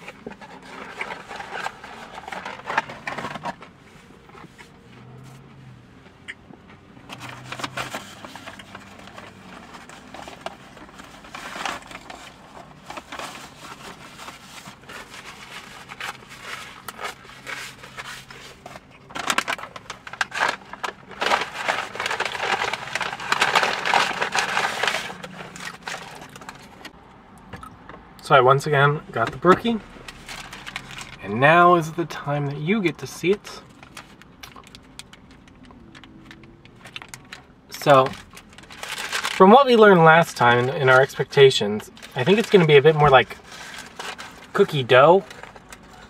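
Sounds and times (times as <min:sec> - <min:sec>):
food packaging crinkling: 0:07.2 - 0:26.9, 0:33.6 - 0:39.5, 0:41.9 - 0:46.0.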